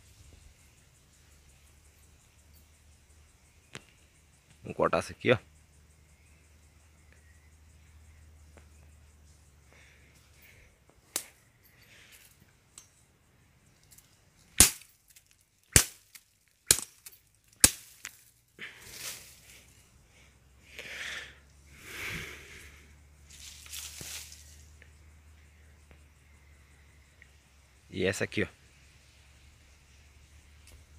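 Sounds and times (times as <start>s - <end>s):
rustling leaves and dry litter: 13.7s - 19.8s, 23.2s - 24.8s
machete chopping bamboo: 14.6s - 14.9s, 15.7s - 18.2s.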